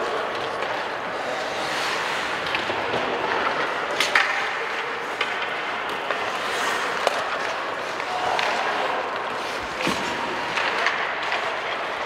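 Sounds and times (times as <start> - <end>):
stick and puck clacks: 0.0 - 12.0
skates hissing on ice: 0.9 - 3.4, 6.2 - 7.2.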